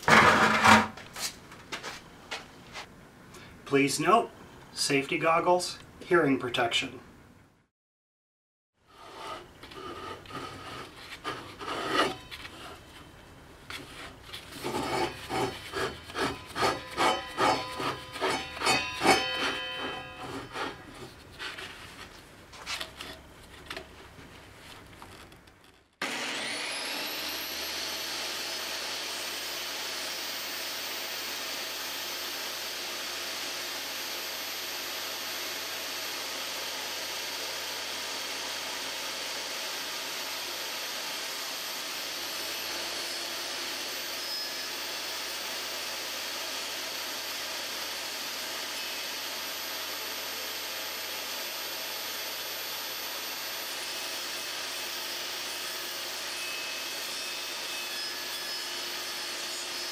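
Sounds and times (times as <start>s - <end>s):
table saw motor whining: 14.5s - 21.2s, 26.0s - 59.9s.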